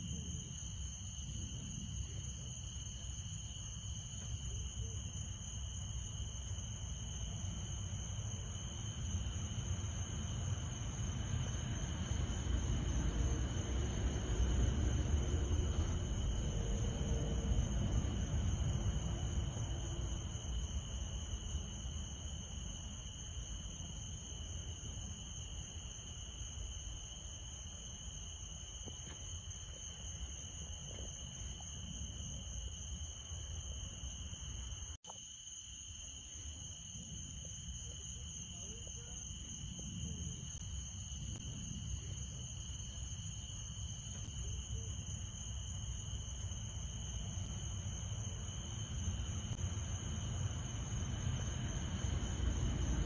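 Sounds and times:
low rumble: 0:09.7 - 0:20.8.

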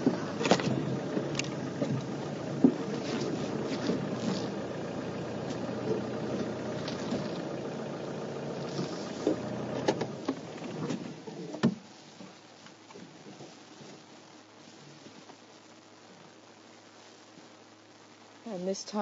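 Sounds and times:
vehicle engine running: 0:00.0 - 0:11.4.

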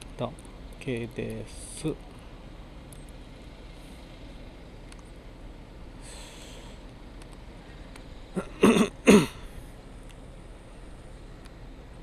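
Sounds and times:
faint outdoor background: 0:00.0 - 0:12.0
person coughing: 0:08.4 - 0:09.4.

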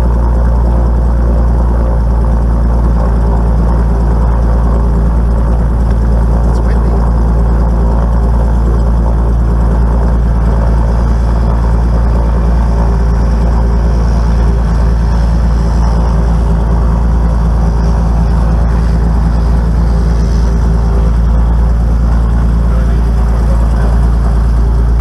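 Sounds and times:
aircraft piston engine droning: 0:00.0 - 0:25.0.

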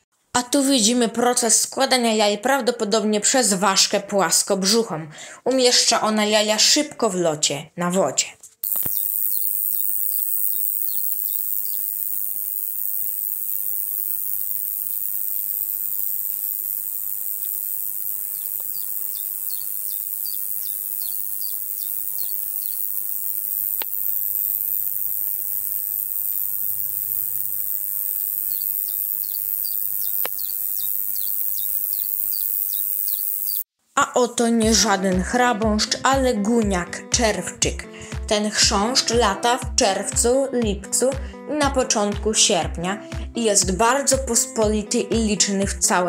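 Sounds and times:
high-pitched cricket buzzing: 0:08.6 - 0:33.7.

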